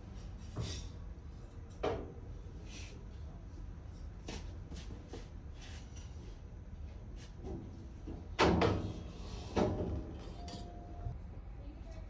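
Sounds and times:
steady low hum: 0:09.0 - 0:12.0.

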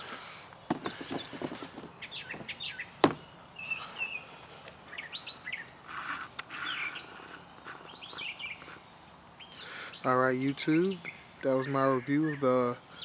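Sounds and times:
small birds chirping: 0:00.0 - 0:13.0
shoe handling clicks: 0:00.7 - 0:03.2.

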